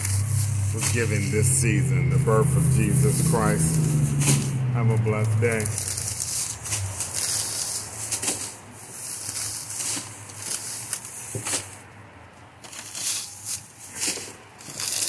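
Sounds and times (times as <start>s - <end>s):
plastic bags rustling and crinkling: 5.6s - 11.8s, 12.6s - 15.0s.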